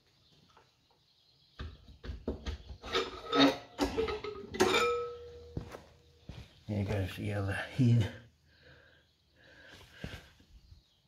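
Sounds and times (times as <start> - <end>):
metal clanks and knocks: 1.6 - 5.6.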